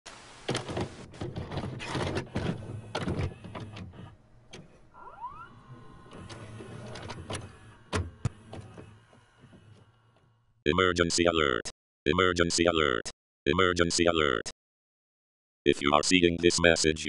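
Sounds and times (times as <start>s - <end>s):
tape mechanism clunks and clicks: 0.5s - 4.8s, 5.6s - 10.3s
motor whirring with whine: 2.2s - 10.6s.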